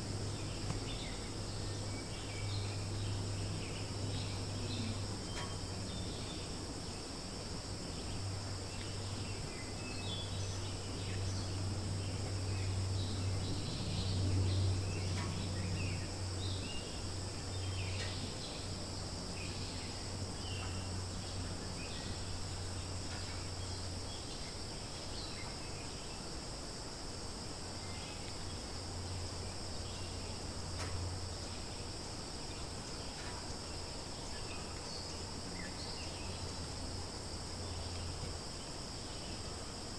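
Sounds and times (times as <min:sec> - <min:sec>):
continuous low hum: 0:00.0 - 0:39.9
high-pitched insect chorus: 0:00.0 - 0:39.9.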